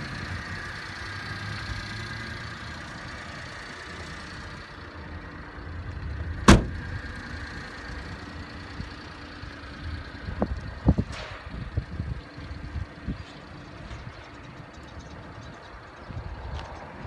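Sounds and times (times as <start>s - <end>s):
truck engine idling: 0.0s - 17.0s
car door shutting with bang: 6.4s - 6.8s.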